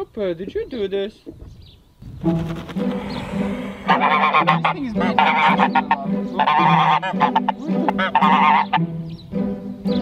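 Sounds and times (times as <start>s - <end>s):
geese honking: 2.3s - 9.1s.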